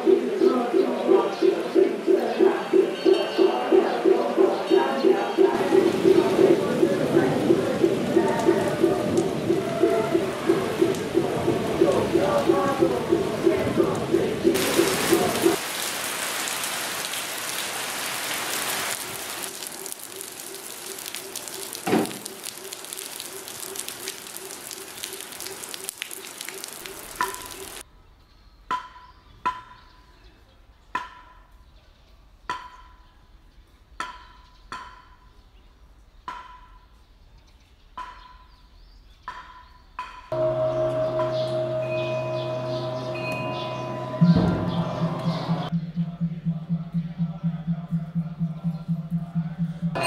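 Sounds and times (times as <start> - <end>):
steady rain falling: 5.5 - 27.8
bell ringing: 40.4 - 45.7
slow ringing knocks: 40.4 - 45.7.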